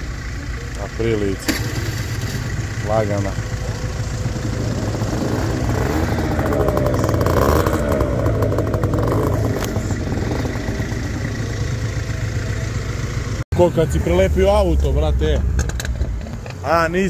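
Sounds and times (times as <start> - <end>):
scooter engine revving: 0.0 - 13.4
rapid clatter: 1.0 - 13.4.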